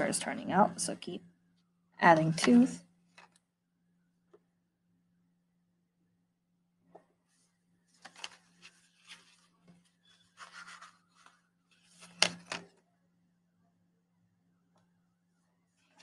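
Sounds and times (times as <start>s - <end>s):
paper rustling: 7.3s - 12.7s.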